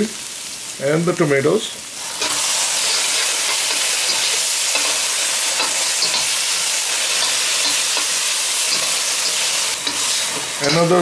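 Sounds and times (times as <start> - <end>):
vegetables frying hiss: 0.0 - 11.0
metal spatula scraping pan: 7.1 - 11.0.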